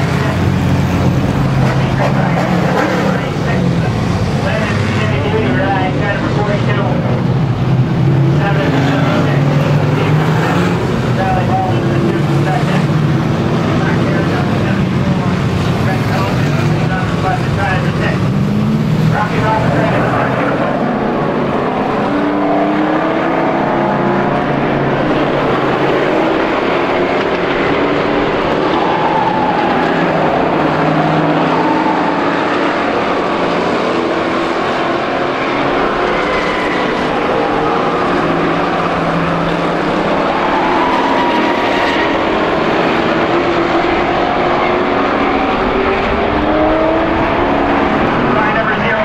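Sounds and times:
race car engines passing: 0.0s - 49.0s.

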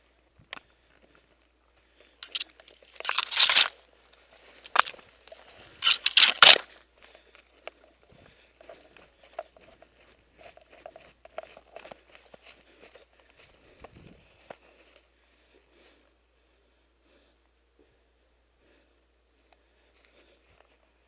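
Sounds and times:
brush scraping and rustling: 2.2s - 6.8s.

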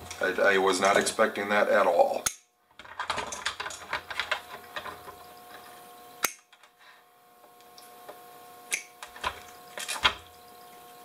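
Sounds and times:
plastic parts and wires rattling: 2.7s - 5.6s.

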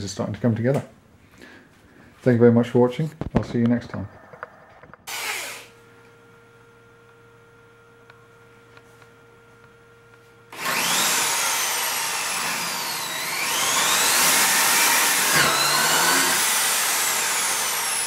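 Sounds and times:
cordless drill motor whine: 4.4s - 8.5s, 9.2s - 18.0s.

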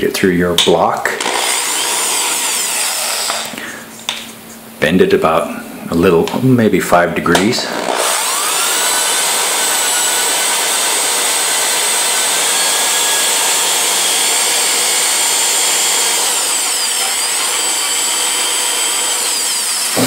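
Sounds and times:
electric drill whining: 1.2s - 3.6s, 7.7s - 20.0s.

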